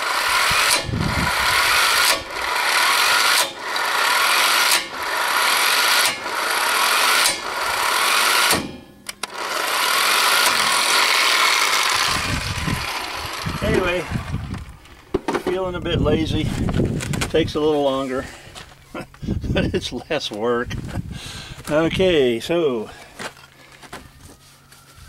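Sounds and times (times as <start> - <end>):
impact wrench rattling: 0.0 - 15.7.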